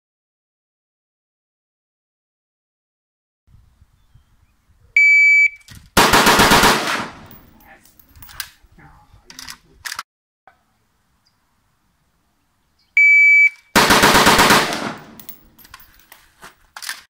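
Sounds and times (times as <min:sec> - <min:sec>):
gunshot echo: 0:06.0 - 0:07.4, 0:13.8 - 0:15.3
rapid rifle shots: 0:06.0 - 0:07.4, 0:13.8 - 0:15.2.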